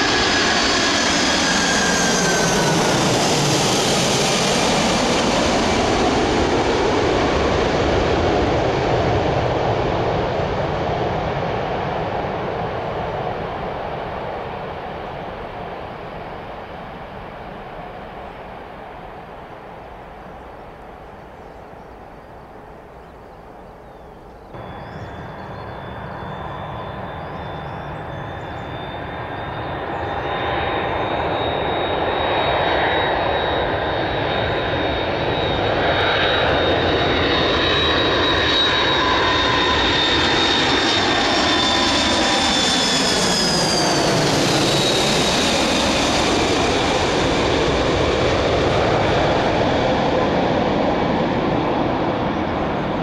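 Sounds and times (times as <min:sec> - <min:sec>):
distant jet noise: 0:00.0 - 0:53.0
jet aircraft engines on approach: 0:00.0 - 0:53.0
high engine whine: 0:19.0 - 0:53.0.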